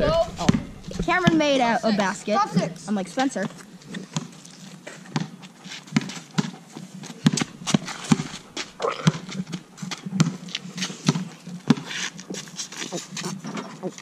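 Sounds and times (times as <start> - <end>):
basketball bouncing on asphalt: 0.0 - 1.6, 3.3 - 4.4, 5.0 - 12.4
sneaker scuffs: 7.1 - 13.4.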